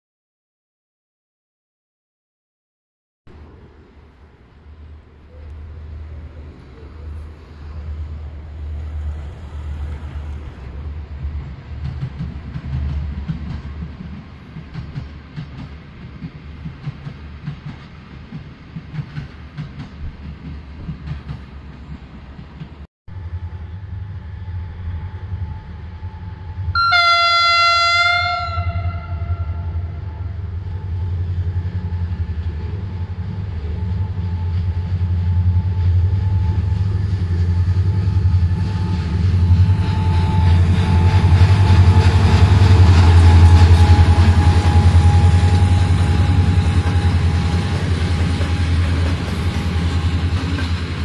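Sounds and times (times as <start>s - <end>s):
locomotive engine drone: 3.3s - 14.8s, 23.1s - 51.0s
locomotive horn blast: 24.6s - 31.2s, 37.6s - 50.3s.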